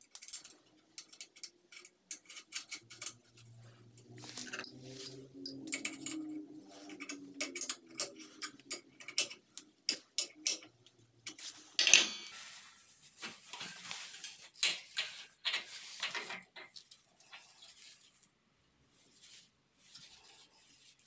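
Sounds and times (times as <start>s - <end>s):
pliers clicking and scraping on metal: 0.0s - 12.4s.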